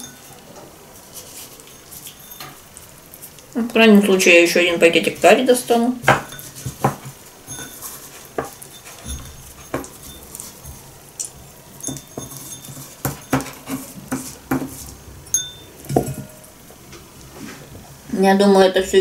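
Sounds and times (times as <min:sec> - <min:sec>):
meat tapping ceramic bowl: 0:06.0 - 0:10.4, 0:11.2 - 0:16.4.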